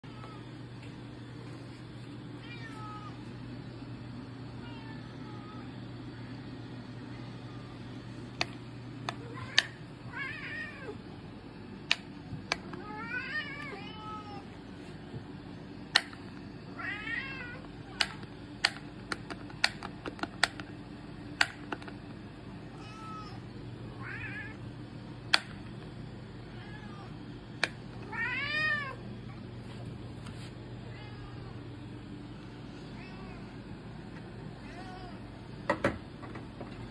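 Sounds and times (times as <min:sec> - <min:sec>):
steady low hum: 0:00.0 - 0:36.9
cats meowing: 0:16.7 - 0:18.0, 0:28.0 - 0:29.0.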